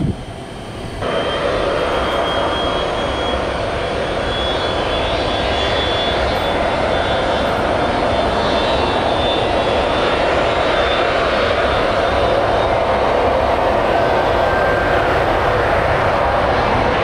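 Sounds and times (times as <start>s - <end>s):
jet engines roaring: 0.0s - 17.0s
thin high whine: 1.0s - 10.1s.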